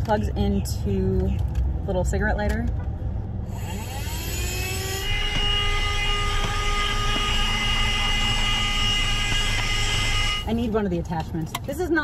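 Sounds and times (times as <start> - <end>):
handheld vacuum motor whine: 3.5 - 10.5.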